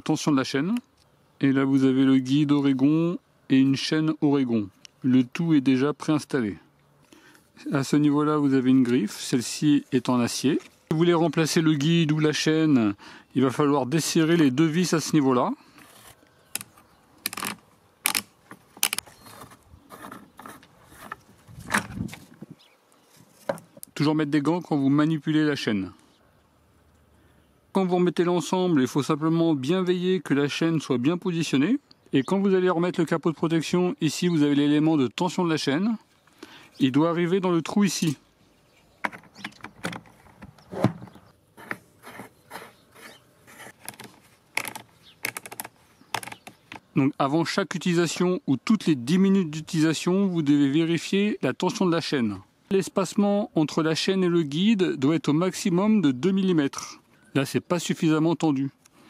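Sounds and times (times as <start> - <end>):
plastic clicks and knocks: 43.8 - 46.9.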